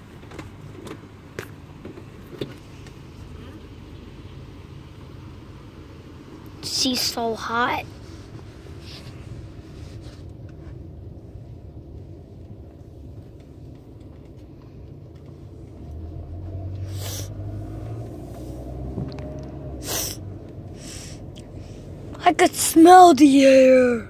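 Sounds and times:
car engine and road noise: 0.0 - 24.0
short breathy noises: 16.8 - 17.6, 19.8 - 22.0.

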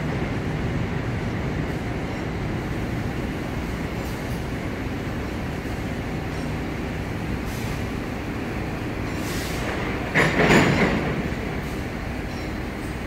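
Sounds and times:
freight train rumbling past: 0.0 - 13.0
train wheels clattering: 8.9 - 13.0.

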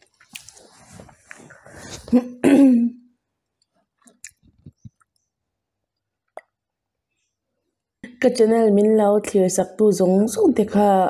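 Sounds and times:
faint mouth sounds of eating: 0.0 - 2.2, 3.6 - 5.4.

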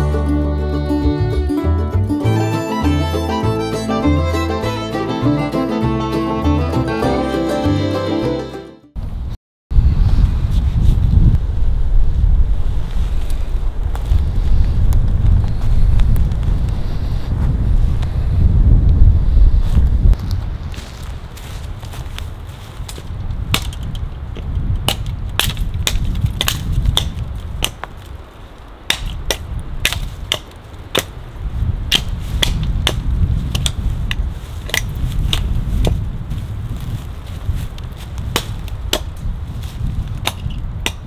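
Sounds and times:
wind rumbling on microphone: 9.0 - 41.0
hatchet chopping wood: 23.5 - 24.0, 24.8 - 27.9, 28.9 - 31.1, 31.9 - 33.8, 34.7 - 36.0, 38.3 - 39.2, 40.2 - 41.0.

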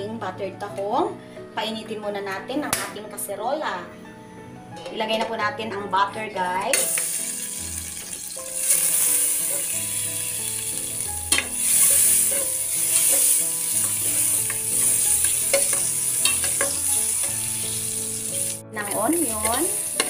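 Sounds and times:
butter sizzling in a pot: 6.7 - 20.0
metal spoon scraping a pot: 11.3 - 17.7.

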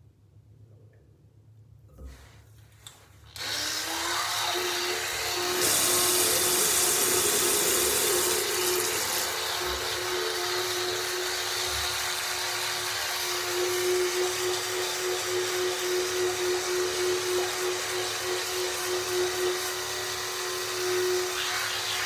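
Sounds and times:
small electric motor humming: 3.4 - 22.0.

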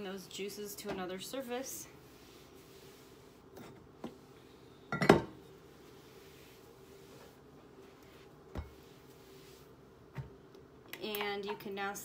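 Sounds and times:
cloth wiping countertop: 1.3 - 4.7, 5.5 - 9.8.

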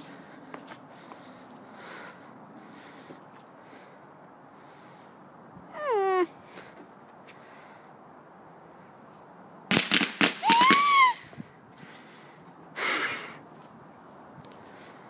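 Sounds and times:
firework whine: 9.7 - 11.2
fireworks cracking: 9.7 - 11.2.

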